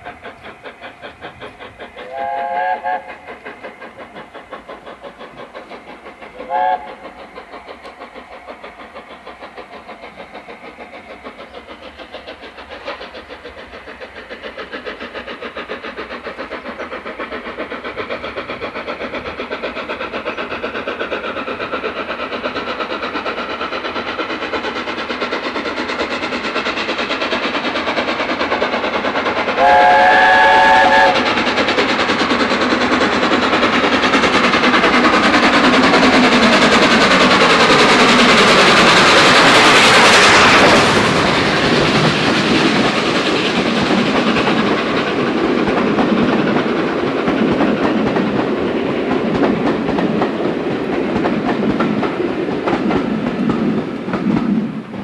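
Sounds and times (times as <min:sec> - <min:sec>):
steam locomotive exhaust beats: 0:00.0 - 0:55.0
steam locomotive chime whistle: 0:02.0 - 0:03.1, 0:06.4 - 0:07.0, 0:29.6 - 0:31.3.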